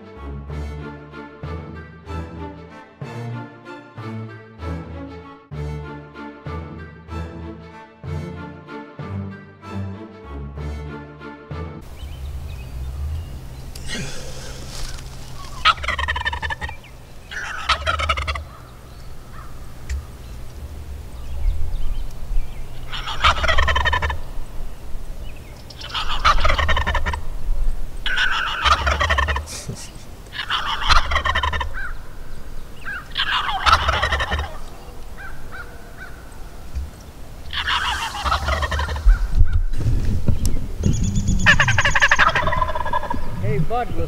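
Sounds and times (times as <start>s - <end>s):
turkey gobbling: 11.9s - 39.7s, 40.8s - 44.0s.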